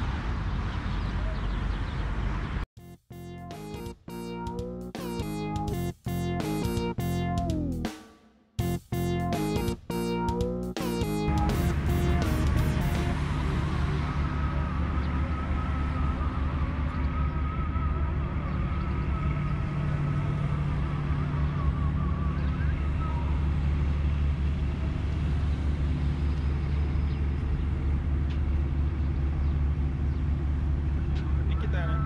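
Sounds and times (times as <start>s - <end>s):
deep hum: 2.8s - 8.0s, 8.6s - 30.8s
low engine rumble: 8.6s - 32.0s.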